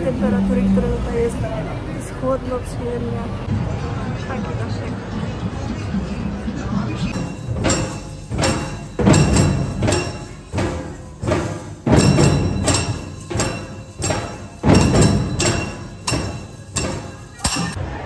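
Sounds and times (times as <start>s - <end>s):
barrel drums playing: 7.1s - 17.8s
hand cymbals ringing: 7.1s - 17.8s.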